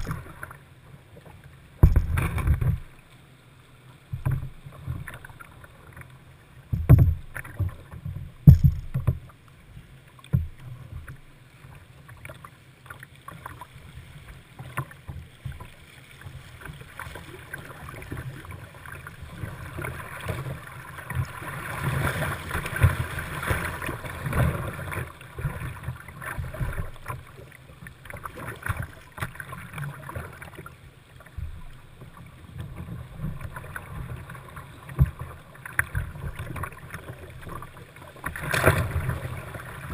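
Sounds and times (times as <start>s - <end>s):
water slapping boat hull: 0.0s - 3.2s, 3.9s - 39.9s
paddle strokes: 0.0s - 39.9s
loud thumps: 1.8s - 2.8s, 6.8s - 7.3s, 8.4s - 9.2s.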